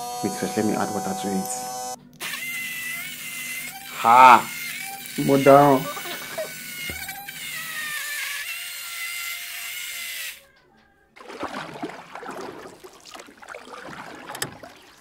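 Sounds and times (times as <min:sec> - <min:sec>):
blender motor whining: 0:00.0 - 0:10.5.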